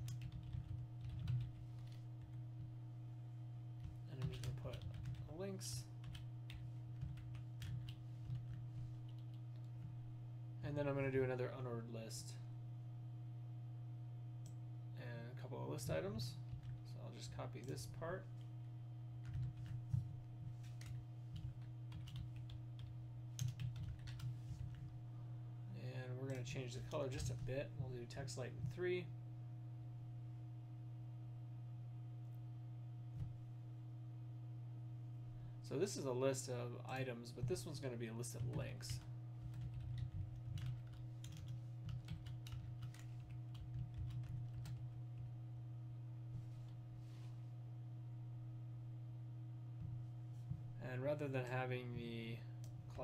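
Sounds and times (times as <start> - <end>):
computer keyboard typing: 0.0 - 2.4, 3.8 - 5.3, 6.0 - 9.7, 19.2 - 20.0, 20.6 - 24.8, 38.4 - 45.3
steady low hum: 0.0 - 53.0.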